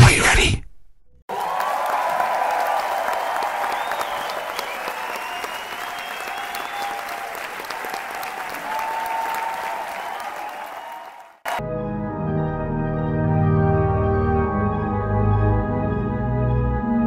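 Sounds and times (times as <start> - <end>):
crowd applauding: 1.3 - 11.6.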